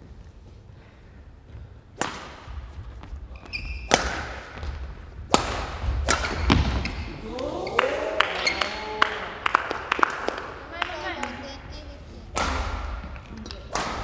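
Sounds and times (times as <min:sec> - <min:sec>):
racket hitting shuttlecock: 0:01.9 - 0:07.2, 0:12.2 - 0:14.0
shoes squeaking on floor: 0:02.7 - 0:04.9, 0:06.2 - 0:07.8, 0:08.4 - 0:08.8.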